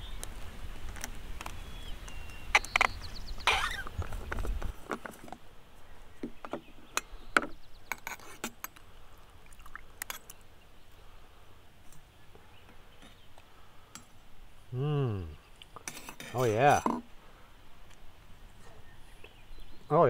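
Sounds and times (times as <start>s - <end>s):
handling rustle: 0.1s - 7.0s
thermos being unscrewed: 15.8s - 17.0s.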